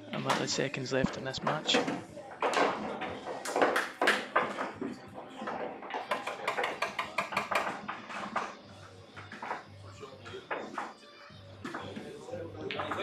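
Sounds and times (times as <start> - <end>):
pool balls clacking: 0.0 - 11.0, 11.6 - 13.0.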